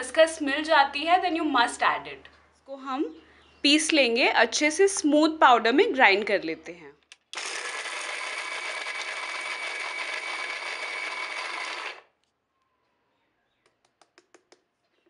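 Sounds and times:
mixer grinder grinding nuts: 0:07.3 - 0:12.1.

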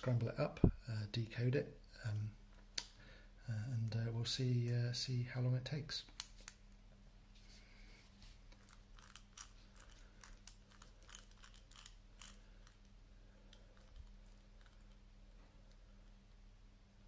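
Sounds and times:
padlock wheels clicking: 0:08.6 - 0:12.8.

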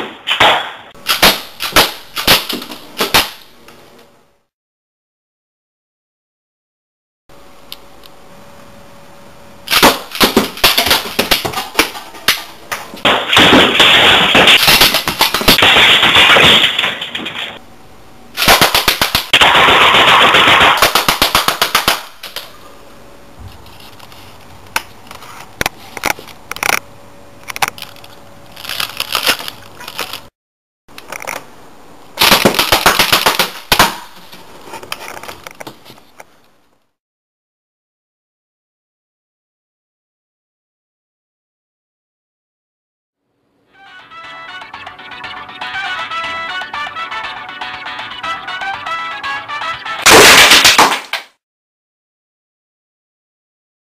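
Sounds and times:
projectiles smashing a laptop: 0:13.0 - 0:17.6, 0:18.4 - 0:22.0, 0:50.0 - 0:51.2
coilgun firing rapid cracks: 0:13.1 - 0:16.9, 0:18.4 - 0:22.2, 0:32.2 - 0:34.0.

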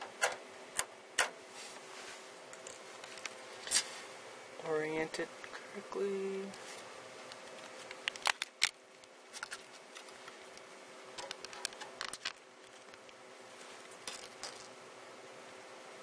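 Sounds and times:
plastic packaging crackling: 0:07.3 - 0:10.5, 0:11.2 - 0:13.2.

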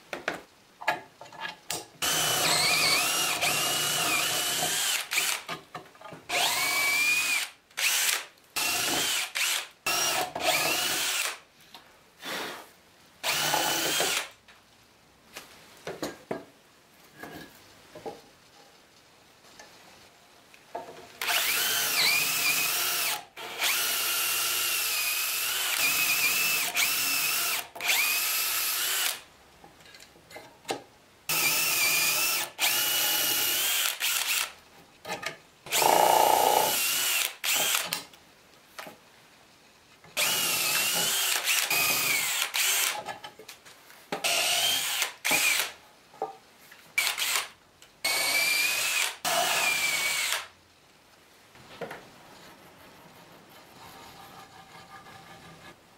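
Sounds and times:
cordless drill boring: 0:02.0 - 0:05.5, 0:06.3 - 0:11.4, 0:13.2 - 0:14.3, 0:21.2 - 0:29.2, 0:31.3 - 0:34.5, 0:35.7 - 0:38.0, 0:40.2 - 0:43.0, 0:44.2 - 0:45.7, 0:47.0 - 0:47.5, 0:48.1 - 0:50.5.

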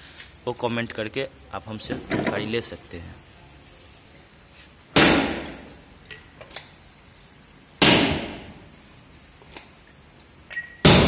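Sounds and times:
faint metal clinks: 0:05.4 - 0:06.8, 0:10.4 - 0:10.9.

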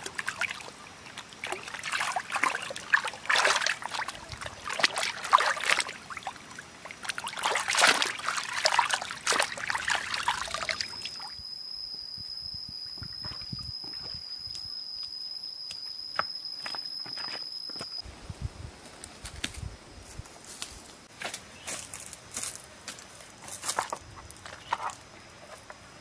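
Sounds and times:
water splashing and sloshing: 0:00.0 - 0:11.3
high insect drone: 0:00.0 - 0:18.1
faint footsteps on stones: 0:18.8 - 0:25.8.

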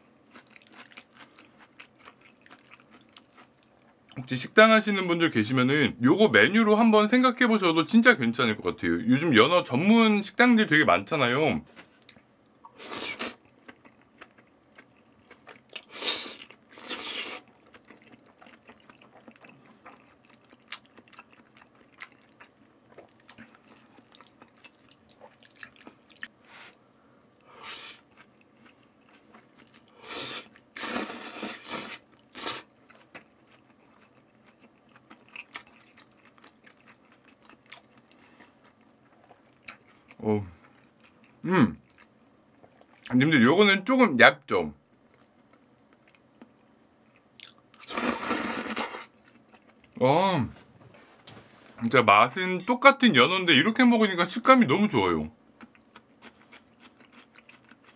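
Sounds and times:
quiet chewing: 0:00.3 - 0:04.2, 0:11.8 - 0:30.7, 0:31.4 - 0:43.1, 0:44.8 - 0:48.0, 0:48.7 - 0:50.0, 0:55.6 - 0:57.9
loud slurps: 0:30.0 - 0:32.7, 0:47.8 - 0:49.1.

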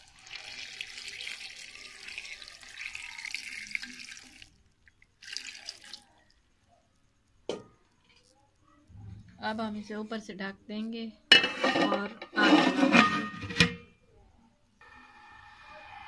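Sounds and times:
water pouring into a pot: 0:00.0 - 0:06.4.

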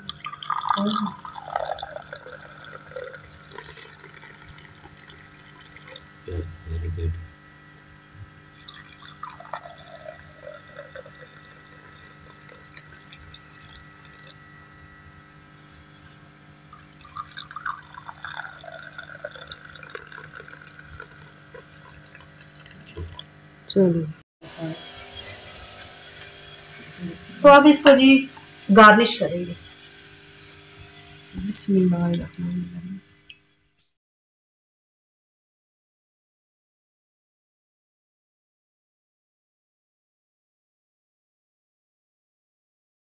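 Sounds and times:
tea pouring into glass cups: 0:00.0 - 0:06.2, 0:08.4 - 0:14.5, 0:16.7 - 0:23.3.

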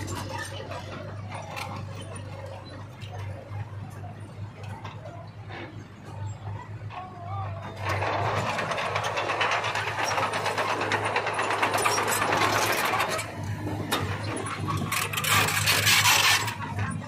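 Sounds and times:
diesel engines running: 0:00.0 - 0:17.0
fast mechanical rattle: 0:07.8 - 0:17.0.

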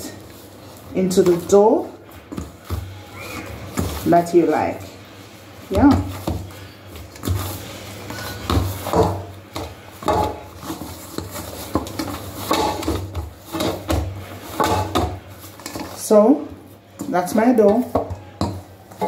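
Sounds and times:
dough knocking against steel bowl: 0:08.4 - 0:15.8.

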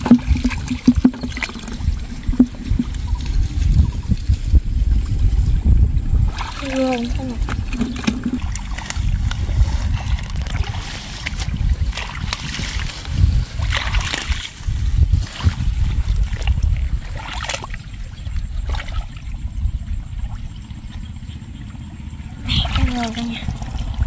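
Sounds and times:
wet splashes: 0:00.0 - 0:03.7, 0:06.3 - 0:14.6, 0:15.2 - 0:19.3, 0:22.4 - 0:24.0
hands sloshing through mud: 0:00.0 - 0:04.5, 0:06.3 - 0:19.2, 0:22.4 - 0:24.0.

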